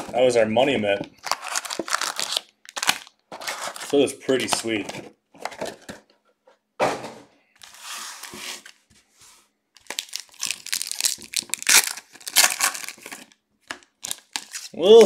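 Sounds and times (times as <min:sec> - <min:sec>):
foil wrappers crinkling and tearing: 0:01.2 - 0:04.0, 0:09.8 - 0:15.0.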